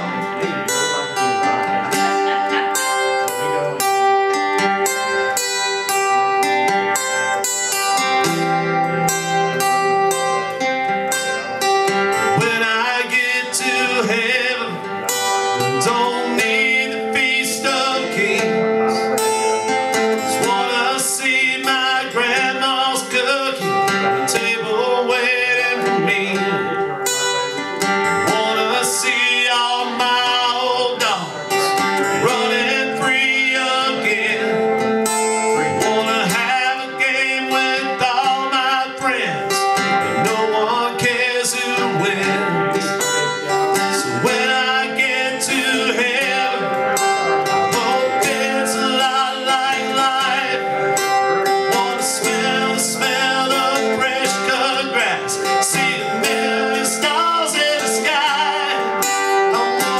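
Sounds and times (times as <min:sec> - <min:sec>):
guitar playing: 0:00.0 - 0:59.9
man singing: 0:00.0 - 0:59.9.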